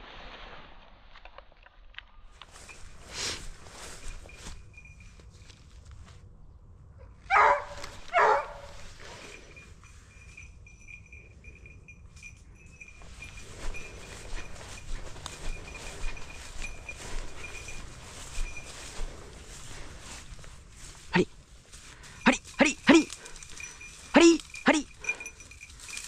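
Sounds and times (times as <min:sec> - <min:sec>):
footsteps walking: 0:02.4 - 0:06.3, 0:07.3 - 0:09.6, 0:12.7 - 0:26.0
dog barking: 0:07.2 - 0:08.8.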